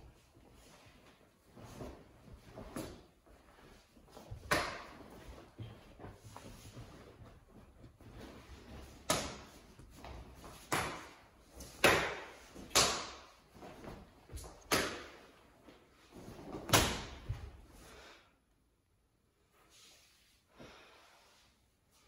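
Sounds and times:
feet shuffling on tile floor: 0.0s - 10.7s.

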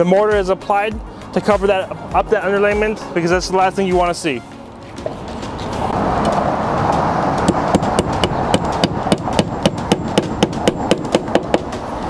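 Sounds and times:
hammer tapping nail: 7.4s - 11.8s.

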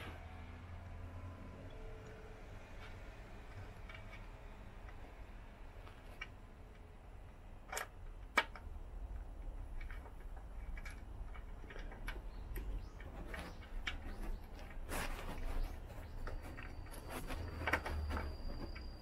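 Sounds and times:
low steady rumble: 0.0s - 19.0s
small metal and plastic clicks: 5.8s - 15.6s.

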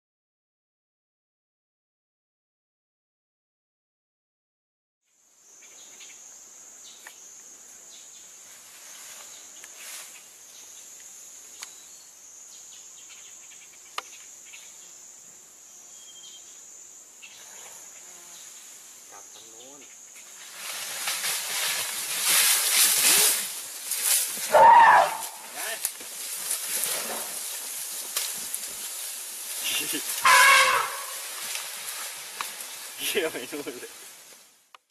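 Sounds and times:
insects buzzing: 5.1s - 34.8s
elephant crashing through undergrowth: 20.4s - 34.3s.

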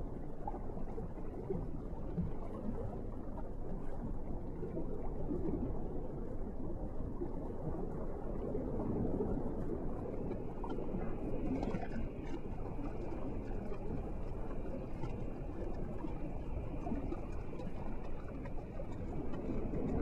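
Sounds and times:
underwater rushing noise: 0.2s - 20.0s
faint clicks: 10.0s - 20.0s.

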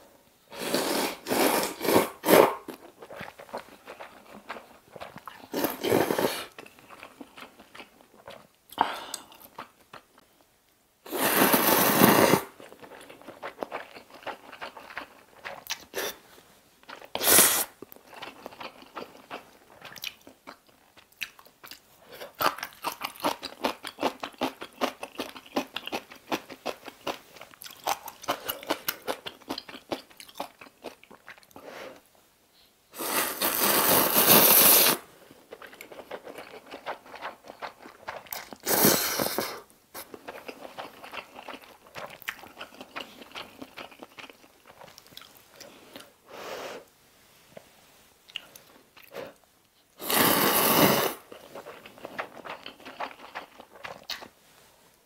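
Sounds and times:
slurping noodles: 0.5s - 2.7s, 5.5s - 6.6s, 11.1s - 12.6s, 33.0s - 35.0s, 38.6s - 39.6s, 50.0s - 51.8s
wet chewing: 35.5s - 38.7s, 51.3s - 54.3s.

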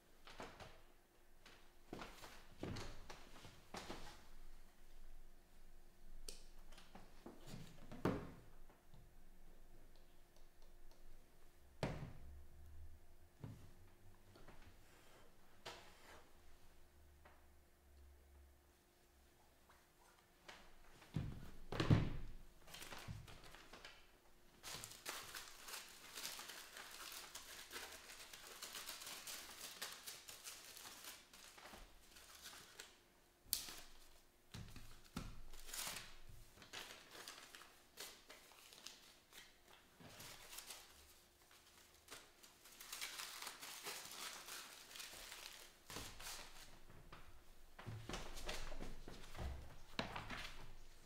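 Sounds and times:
aluminium foil crinkling: 24.6s - 33.0s, 35.5s - 46.8s.

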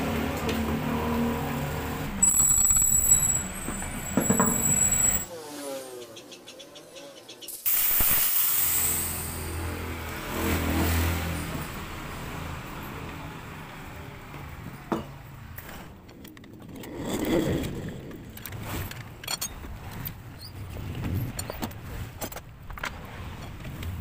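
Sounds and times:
vehicle passing: 9.4s - 14.8s.

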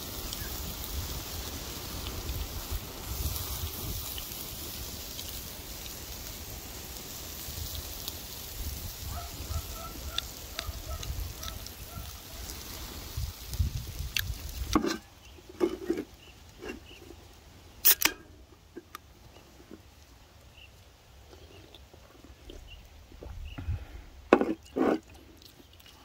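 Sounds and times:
low wind rumble: 8.5s - 14.8s, 22.9s - 24.3s.

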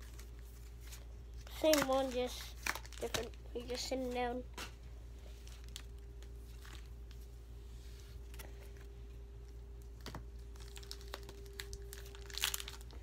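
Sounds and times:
trading cards clicking and rustling: 0.0s - 4.8s
steady low hum: 0.0s - 13.0s.

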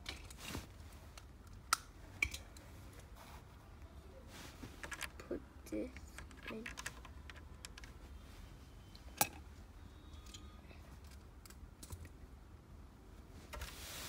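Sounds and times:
plastic bricks clicking and rattling: 6.0s - 7.9s
short rustle: 13.4s - 14.0s.

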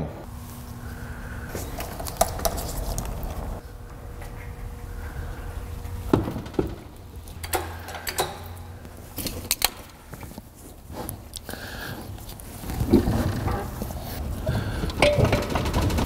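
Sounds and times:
low steady hum: 0.0s - 16.0s
metal knocks and clunks: 14.5s - 16.0s.

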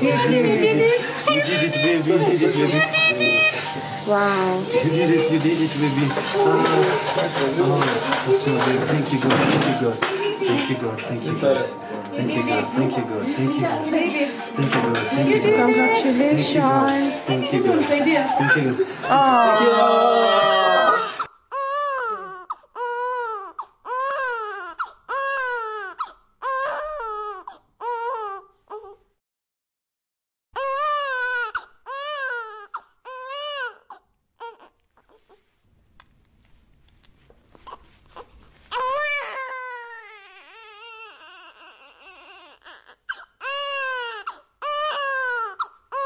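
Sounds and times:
newborn baby crying: 0.0s - 5.2s, 17.1s - 29.0s, 30.6s - 35.4s, 37.5s - 46.0s.

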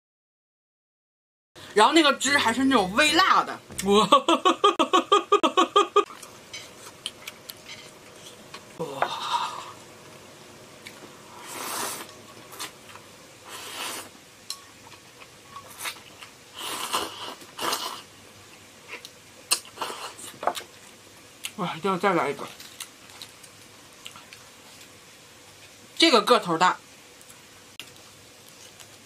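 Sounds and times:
slurping sip: 11.3s - 12.7s, 13.4s - 14.2s.

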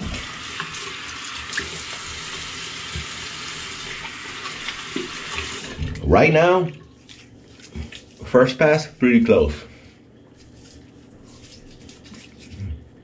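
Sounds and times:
sink tap running: 0.0s - 6.0s.

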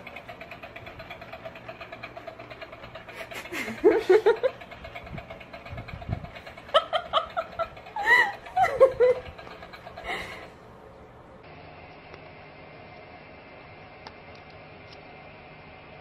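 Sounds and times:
people laughing: 3.1s - 4.7s, 6.4s - 10.5s
small battery motor whirring: 11.4s - 16.0s.

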